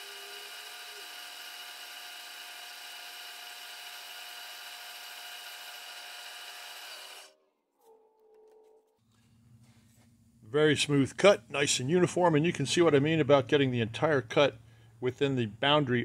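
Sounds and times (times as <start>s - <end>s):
milling machine cutting metal: 0.0s - 7.3s.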